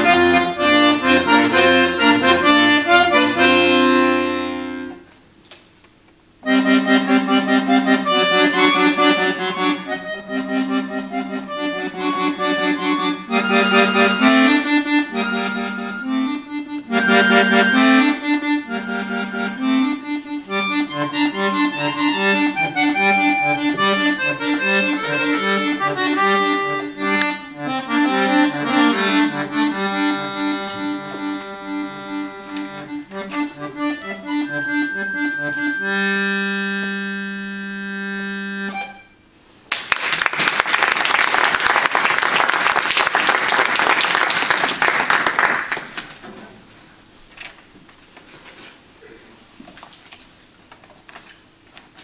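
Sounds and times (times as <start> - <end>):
button accordion playing: 0.0 - 5.1, 6.4 - 39.3
audience applause: 39.7 - 46.2.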